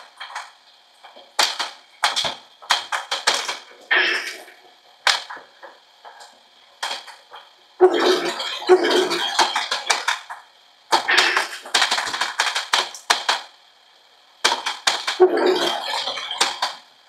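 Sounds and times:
toy pinball plastic clicking: 0:01.4 - 0:04.4, 0:08.2 - 0:13.5, 0:14.4 - 0:16.8.

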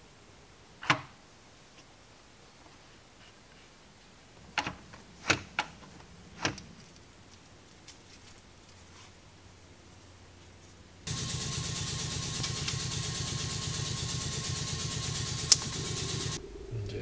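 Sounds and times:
sharp metallic clicks: 0:11.1 - 0:16.4.

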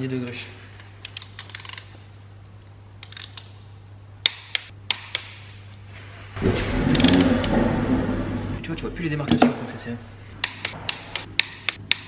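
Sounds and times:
torque wrench clicks: 0:01.0 - 0:01.9, 0:10.4 - 0:12.0.

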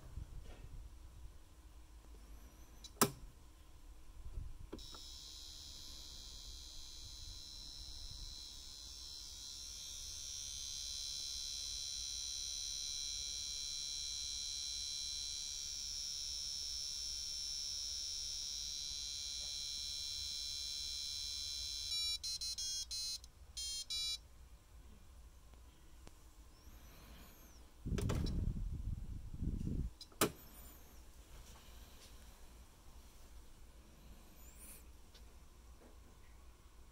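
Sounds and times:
toy timer buzzer drone: 0:04.8 - 0:24.2
electronic beep melody: 0:21.6 - 0:24.2.

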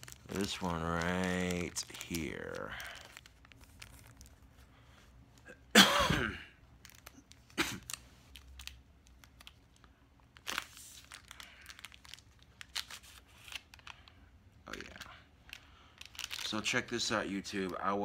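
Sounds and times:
plastic packaging crinkling: 0:00.0 - 0:05.5, 0:06.6 - 0:18.0
loud cough: 0:05.7 - 0:06.6, 0:07.6 - 0:07.8.

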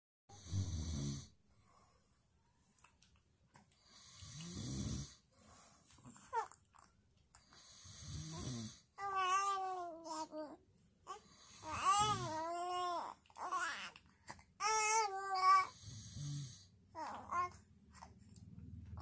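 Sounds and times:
person snoring: 0:00.3 - 0:01.4, 0:03.9 - 0:05.2, 0:07.6 - 0:08.8, 0:11.4 - 0:12.4, 0:15.6 - 0:16.7
baby cooing: 0:06.2 - 0:06.9, 0:09.0 - 0:14.0, 0:14.6 - 0:15.8, 0:17.0 - 0:18.1.

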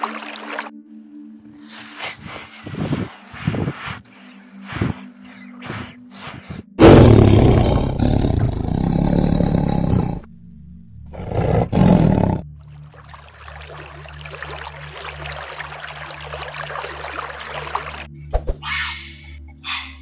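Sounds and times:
snake hissing: 0:01.6 - 0:10.2
tiger roaring: 0:06.8 - 0:10.3, 0:11.1 - 0:12.4.

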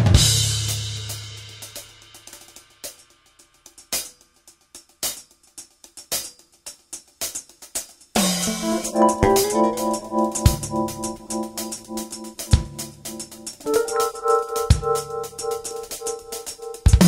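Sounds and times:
drum strokes: 0:07.2 - 0:17.0.

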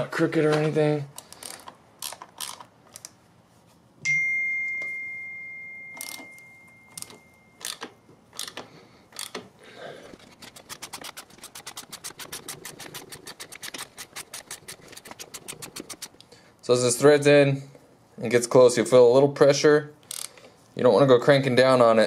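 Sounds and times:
metallic ring: 0:04.1 - 0:07.8
fast ratchet clicking: 0:10.2 - 0:16.2.

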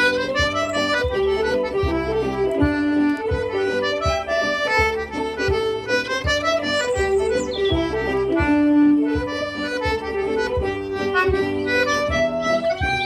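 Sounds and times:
concertina playing dance tune: 0:00.0 - 0:13.0
low regular beat: 0:00.0 - 0:13.0.

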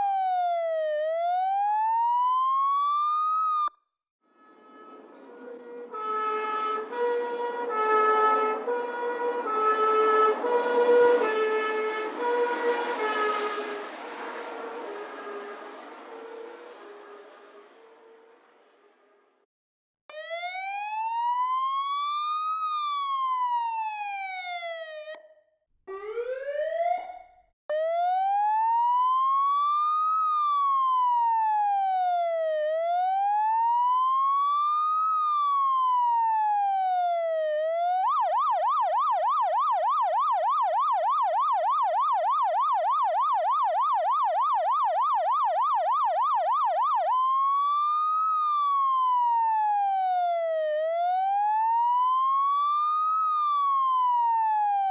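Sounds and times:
emergency siren wailing: 0:00.0 - 0:19.2, 0:20.1 - 0:54.9.

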